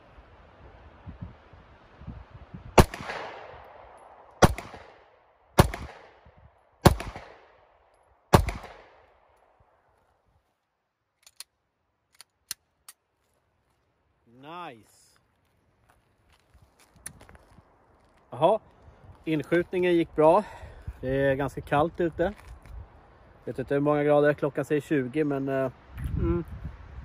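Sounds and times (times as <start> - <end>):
pistol shots with echo: 2.8 - 6.2, 6.8 - 7.6, 8.3 - 9.1.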